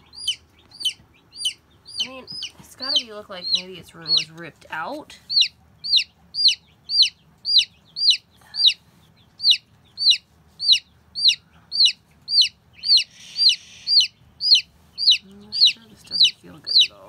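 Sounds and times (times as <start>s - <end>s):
baby chick peeping: 0.0s - 17.0s.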